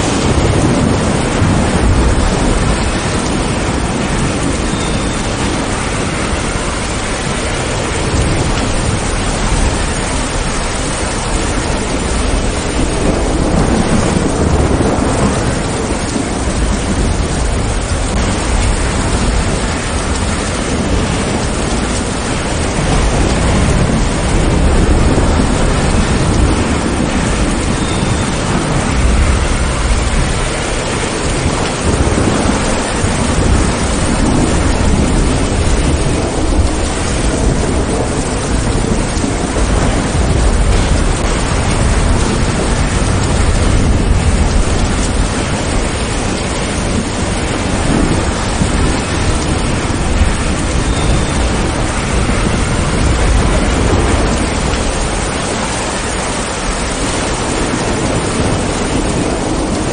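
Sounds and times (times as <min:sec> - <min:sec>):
heavy rain: 0:00.0 - 0:59.9
low rolling thunder: 0:00.0 - 0:59.9.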